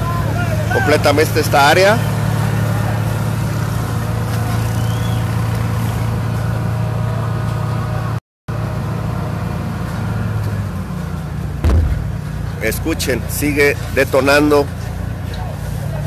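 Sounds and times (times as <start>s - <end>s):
truck engine idling: 0.0s - 16.0s
low thump: 11.6s - 12.3s.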